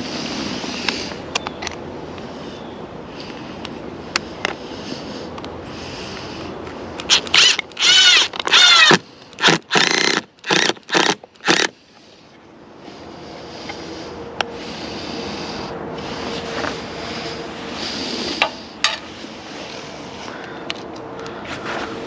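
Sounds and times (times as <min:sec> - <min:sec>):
power drill bursts: 0:07.1 - 0:11.7.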